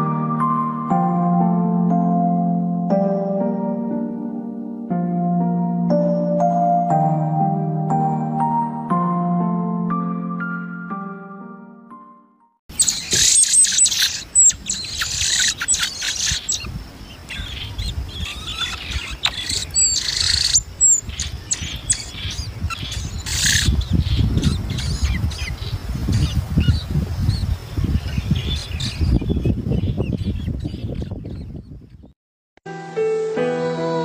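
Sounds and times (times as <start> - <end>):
nestlings chirping: 12.7 - 32.1.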